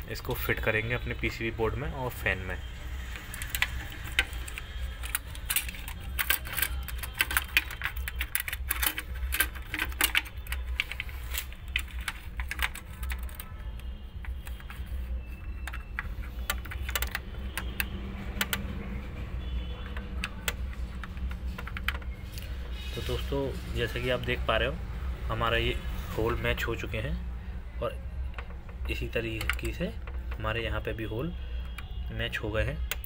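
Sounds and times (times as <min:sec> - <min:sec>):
plastic and metal clicks and rattles: 0:03.1 - 0:18.8, 0:19.4 - 0:22.5, 0:28.2 - 0:30.7.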